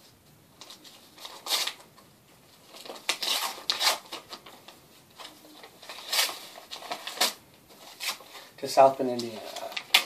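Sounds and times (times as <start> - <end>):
paper envelope rustling: 2.6 - 8.5.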